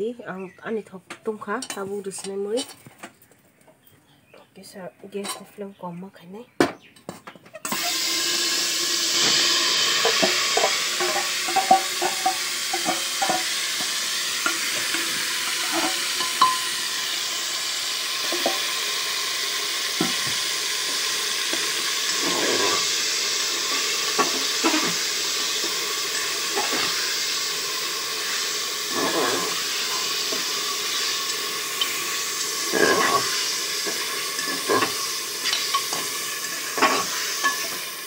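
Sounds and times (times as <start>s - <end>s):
food sizzling in pot: 7.6s - 38.0s
ladle clinking against pot: 10.0s - 16.7s, 33.9s - 37.8s.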